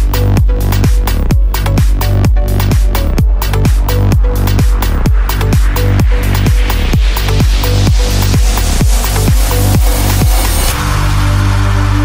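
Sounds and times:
electronic dance music: 0:00.0 - 0:12.0
steady kick drum: 0:00.0 - 0:12.0.

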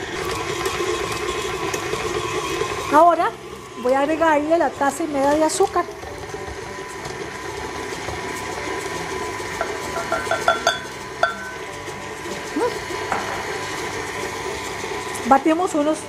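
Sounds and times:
stand mixer running: 0:00.0 - 0:16.0.

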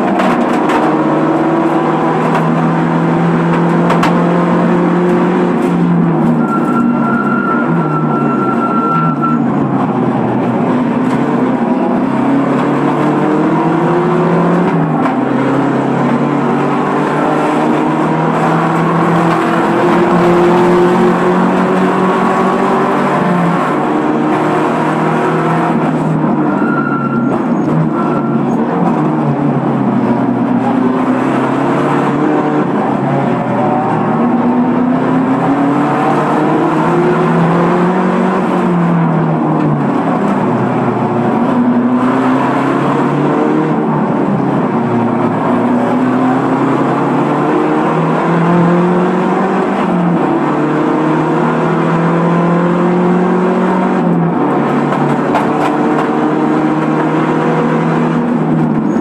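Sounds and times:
race car engine: 0:00.0 - 0:59.0
short high squeal: 0:06.3 - 0:09.6, 0:26.5 - 0:28.6.

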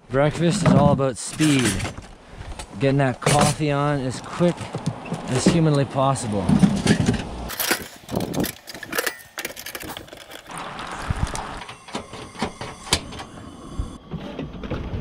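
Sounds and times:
camping gear clattering: 0:00.2 - 0:13.4
kettle set on metal grate: 0:06.8 - 0:13.2.

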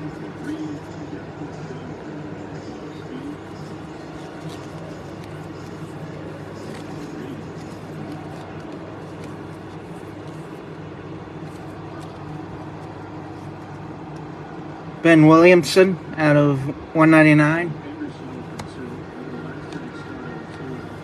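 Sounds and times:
low background hum: 0:00.0 - 0:21.0
cards rustling and ticking: 0:02.8 - 0:14.3, 0:18.4 - 0:21.0.

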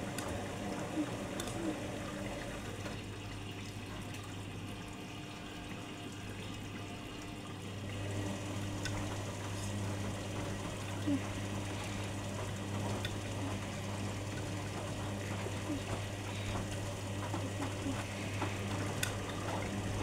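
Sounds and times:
washing machine motor hum: 0:00.0 - 0:20.0
water sloshing in drum: 0:08.9 - 0:20.0.

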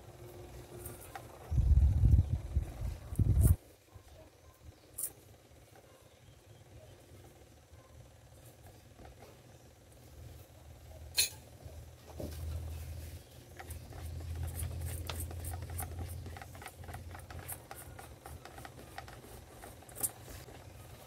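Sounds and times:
hand rubbing glass: 0:12.8 - 0:20.7.

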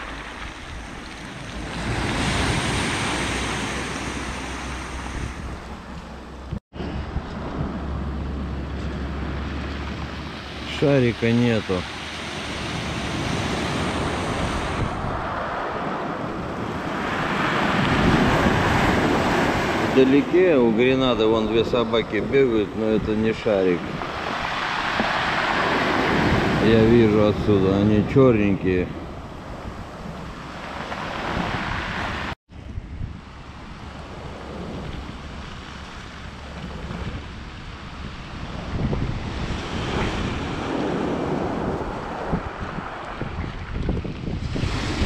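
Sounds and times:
surf breaking on pebble beach: 0:00.0 - 0:05.4, 0:23.6 - 0:27.3
sea waves breaking on pebble beach: 0:00.0 - 0:05.5, 0:10.3 - 0:22.6, 0:23.3 - 0:28.9, 0:44.3 - 0:45.0
wind buffeting microphone: 0:00.0 - 0:10.6, 0:11.9 - 0:45.0.

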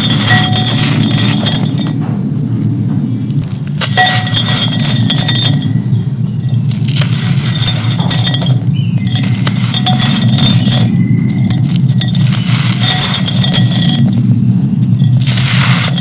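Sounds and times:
steady low hum: 0:00.0 - 0:16.0
crumbs pattering into clay pot: 0:06.3 - 0:16.0
clay chunks crushed by hand: 0:14.8 - 0:16.0.

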